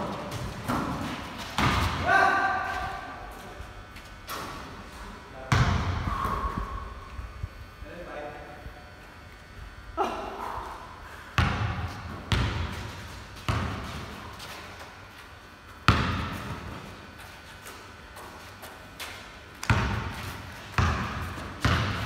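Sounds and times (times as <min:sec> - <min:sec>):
basketball bouncing on concrete: 0:00.1 - 0:02.0, 0:05.5 - 0:06.4, 0:11.4 - 0:14.6, 0:15.9 - 0:16.8, 0:18.2 - 0:22.0.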